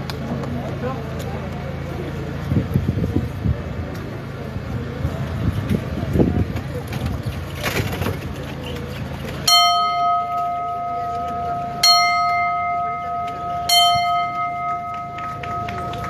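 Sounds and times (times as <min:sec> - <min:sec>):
bell ringing: 0:09.5 - 0:16.0.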